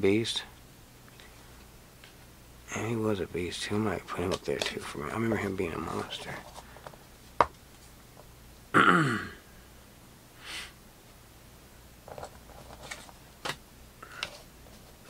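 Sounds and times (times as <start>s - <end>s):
trading cards sliding and tapping: 4.1s - 8.3s, 12.1s - 14.9s.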